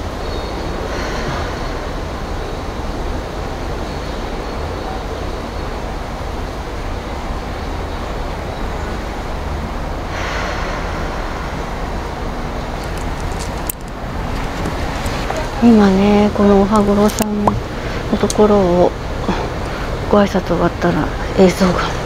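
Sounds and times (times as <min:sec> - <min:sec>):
deep traffic rumble: 0:00.0 - 0:22.0
faint clicks: 0:12.8 - 0:15.5.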